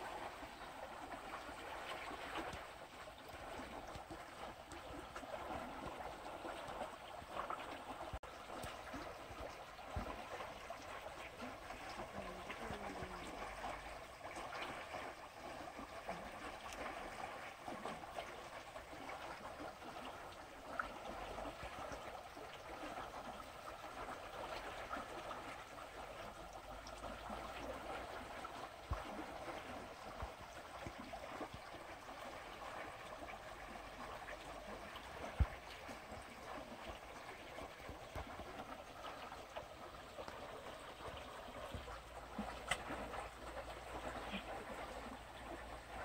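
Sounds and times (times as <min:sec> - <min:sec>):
water trickling over rocks: 0:00.0 - 0:46.0.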